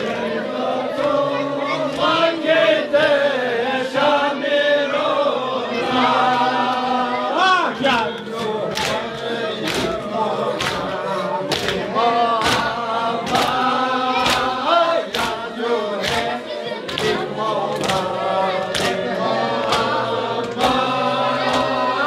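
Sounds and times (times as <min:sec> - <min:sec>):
men chanting in unison: 0:00.0 - 0:22.0
hand strikes keeping beat: 0:07.7 - 0:22.0.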